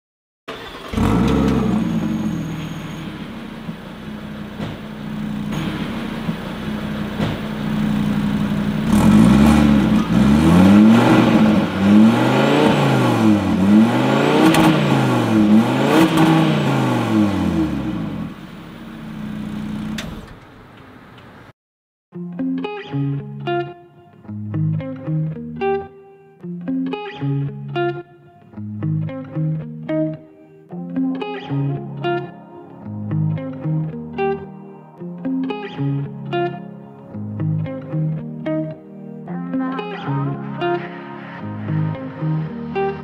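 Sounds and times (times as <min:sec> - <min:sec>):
engine revving in blips: 0:00.5 - 0:21.3
car engine starting and idling: 0:00.5 - 0:21.5.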